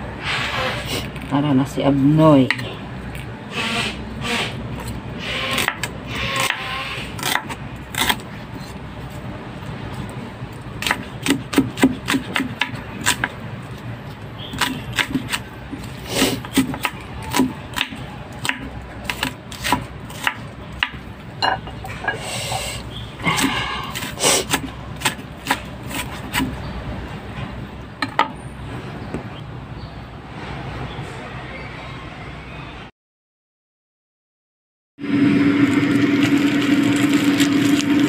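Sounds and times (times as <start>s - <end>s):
knife chopping on wooden board: 10.8s - 13.3s.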